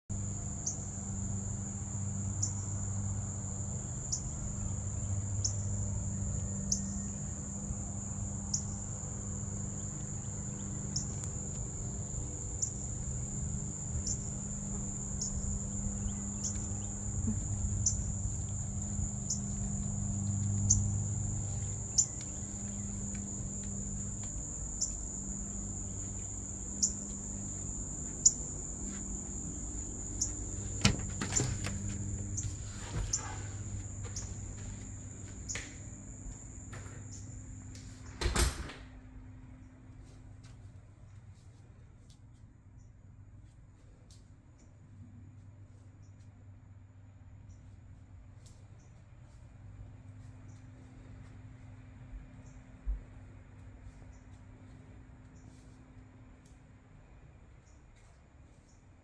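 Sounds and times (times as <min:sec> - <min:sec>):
low hum: 0:00.1 - 0:38.2
insects trilling: 0:00.1 - 0:38.3.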